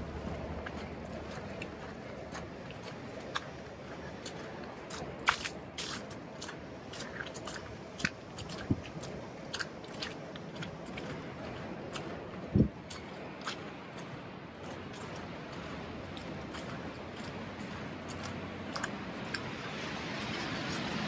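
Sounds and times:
footsteps crunching in snow: 0:03.3 - 0:09.2.

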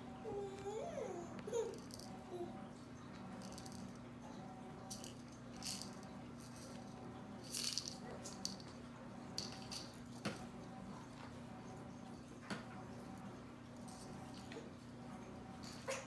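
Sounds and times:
faint steady hum: 0:00.0 - 0:16.0
small object rattling when shaken: 0:01.7 - 0:02.1, 0:03.4 - 0:04.0, 0:04.9 - 0:08.8, 0:09.4 - 0:10.0.

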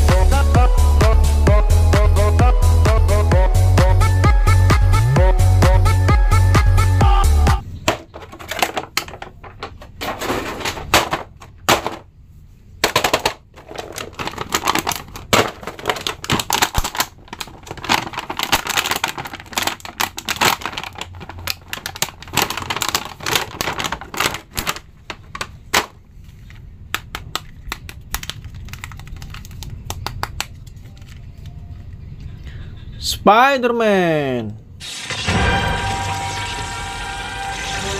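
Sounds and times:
plastic bag crinkling: 0:12.9 - 0:25.9, 0:27.3 - 0:31.3.

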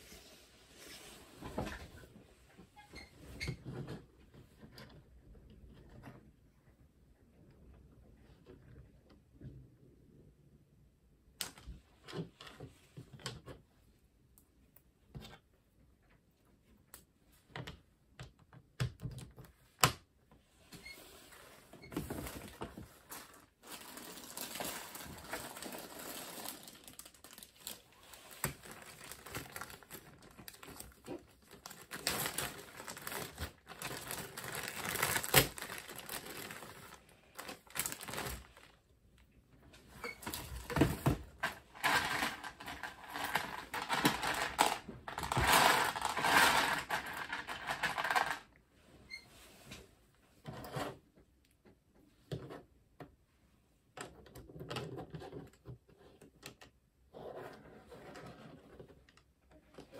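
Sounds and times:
plastic pieces rattling: 0:23.2 - 0:38.8, 0:40.3 - 0:48.5.

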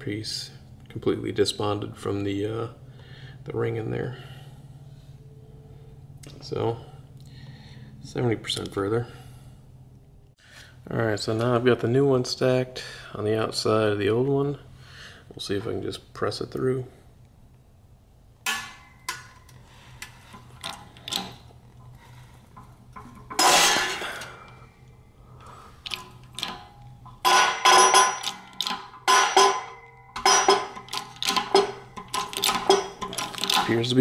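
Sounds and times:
metallic clinks and clanks: 0:18.5 - 0:25.1, 0:25.7 - 0:34.0.

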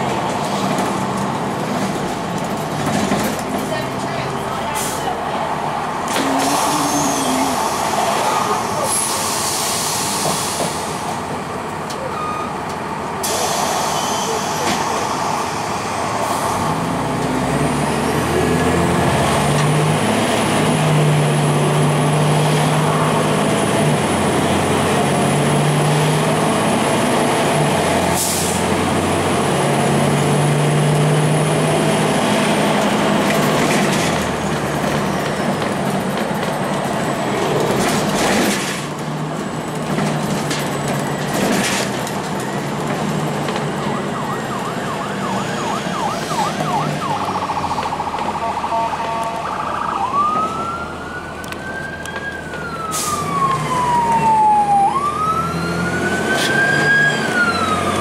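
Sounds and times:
bus engine humming: 0:00.0 - 0:58.0
air brake hiss: 0:08.7 - 0:11.0, 0:13.2 - 0:16.5.

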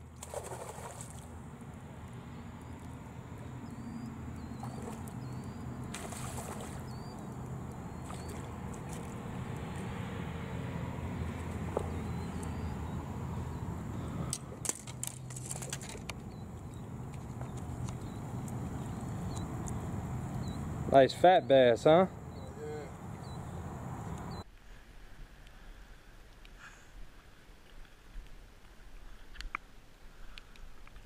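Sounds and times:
sharp splashes and knocks: 0:00.0 - 0:01.3, 0:04.6 - 0:09.9, 0:14.3 - 0:16.2
fish splashing at water surface: 0:00.2 - 0:01.4, 0:04.5 - 0:09.9
low motor drone: 0:16.1 - 0:21.0.

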